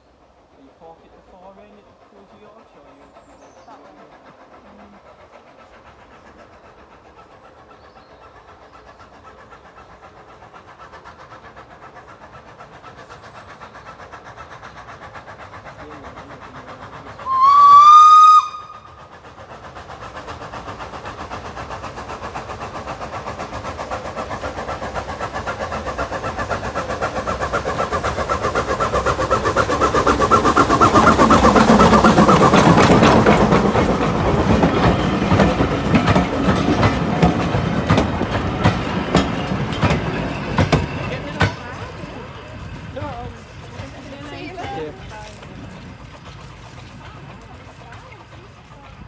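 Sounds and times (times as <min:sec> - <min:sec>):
steam locomotive exhaust beats: 0:00.0 - 0:49.0
steam locomotive whistle: 0:17.2 - 0:19.0
wheels clicking over rails: 0:20.7 - 0:49.0.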